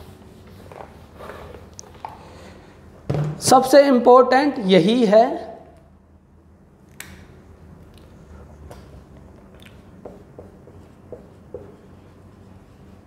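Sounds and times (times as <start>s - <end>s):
low room hum: 0.0s - 13.0s
marker writing on whiteboard: 10.0s - 13.0s.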